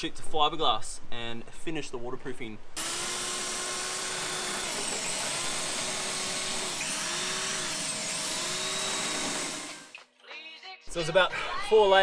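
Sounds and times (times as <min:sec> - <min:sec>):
belt sander sanding: 0:02.8 - 0:09.9.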